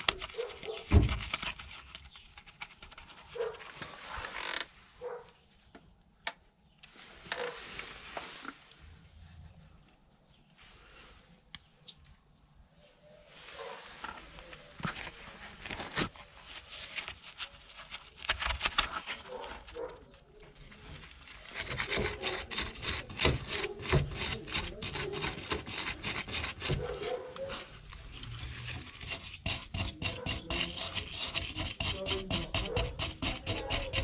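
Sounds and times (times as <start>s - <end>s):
hand tool scraping rusty metal: 20.6s - 34.0s.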